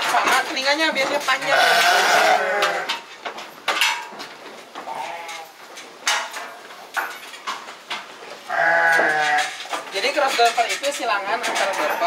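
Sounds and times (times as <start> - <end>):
sheep bleating: 1.4 - 2.9, 4.8 - 5.6, 8.5 - 9.5
metal crate knocking and rattling: 2.5 - 12.0.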